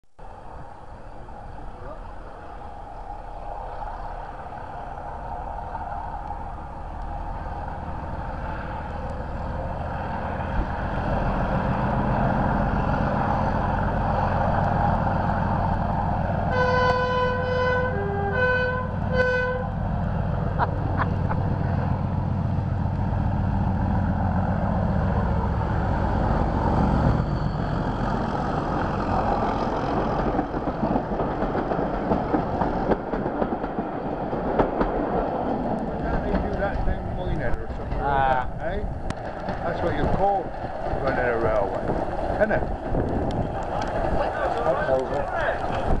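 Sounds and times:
diesel locomotive engine working hard: 0.2 - 46.0
train coaches rolling by: 0.2 - 46.0
two-tone train horn blasts: 16.5 - 19.8.

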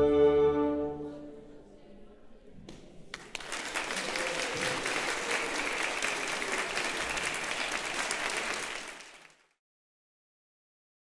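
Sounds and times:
audience applauding: 3.1 - 9.6.

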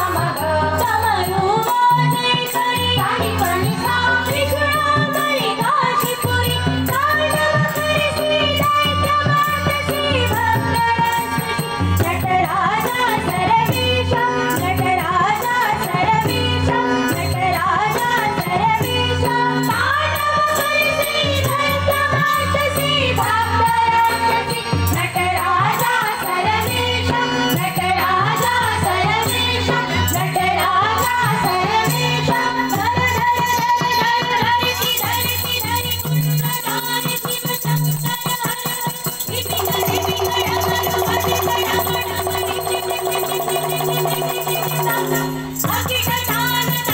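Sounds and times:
women singing devotional song: 0.0 - 46.9
held-note instrumental drone: 39.4 - 45.5.

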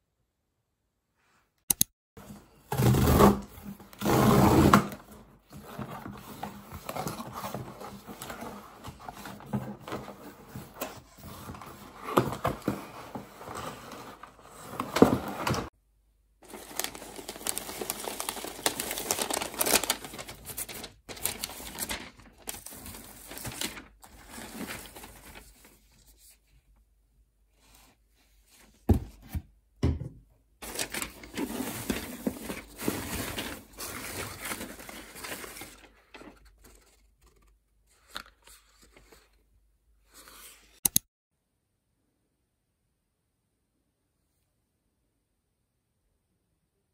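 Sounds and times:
paper packing rustling and tearing: 2.2 - 15.7, 16.4 - 26.4, 30.6 - 39.4.

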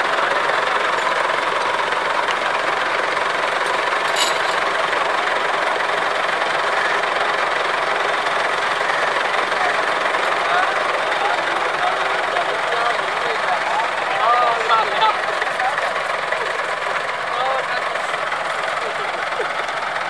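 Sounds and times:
diesel tractor engines idling: 0.0 - 20.0
metal clink: 3.7 - 4.7.

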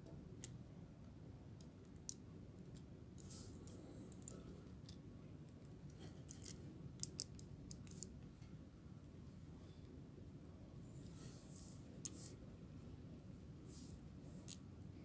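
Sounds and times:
plastic toy parts clicking: 6.3 - 8.1.

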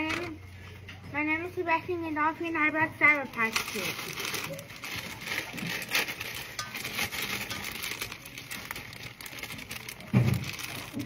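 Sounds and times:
plastic bag crinkling: 0.0 - 0.4, 2.6 - 11.0
candies pattering into metal bowl: 3.0 - 11.0.

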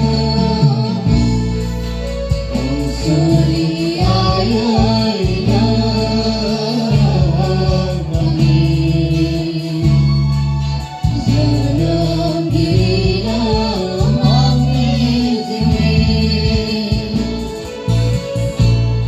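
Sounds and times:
person singing: 0.0 - 18.6
guitar: 0.0 - 19.0
held bass notes: 0.0 - 19.0.

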